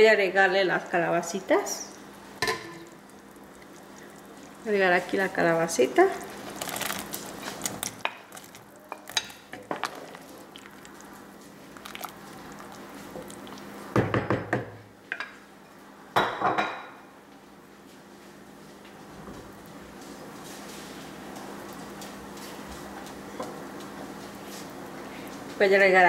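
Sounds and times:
knocks on pot: 14.0s - 14.8s.

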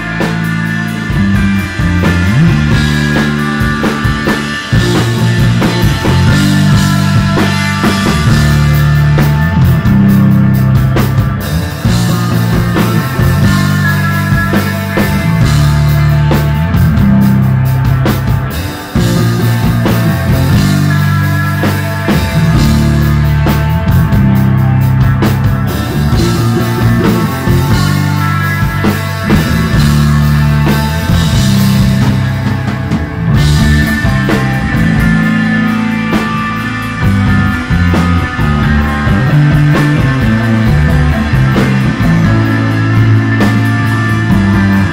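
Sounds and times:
heavy bass line: 0.0s - 44.9s
rock band playing: 0.0s - 44.9s.

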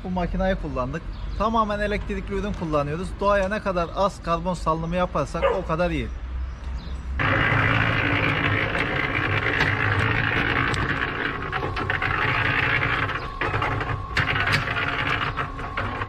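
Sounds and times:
concrete mixer running: 7.2s - 16.0s.

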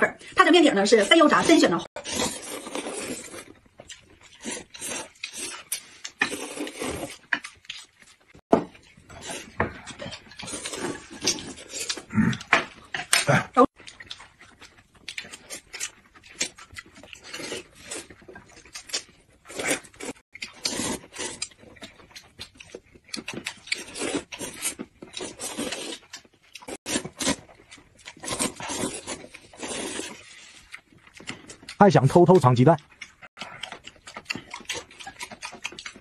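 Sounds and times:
people slurping noodle soup: 0.9s - 3.6s, 4.3s - 7.4s, 9.1s - 13.8s, 18.9s - 21.6s, 23.7s - 26.0s, 28.2s - 31.6s.

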